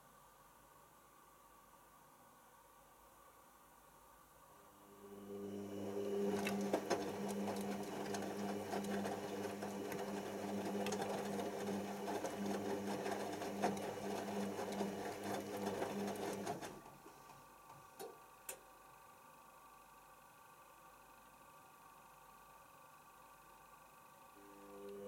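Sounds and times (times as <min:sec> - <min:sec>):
washing machine motor hum: 0:04.7 - 0:19.0, 0:24.3 - 0:25.0.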